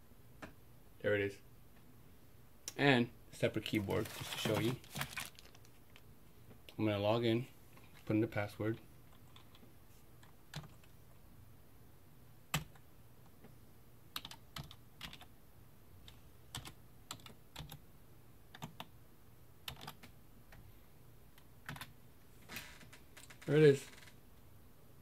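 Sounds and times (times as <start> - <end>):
keystrokes on computer keyboard: 10.2 - 10.9, 12.5 - 12.8, 14.2 - 15.3, 16.0 - 17.8, 18.5 - 18.9, 19.6 - 20.6, 21.6 - 21.9.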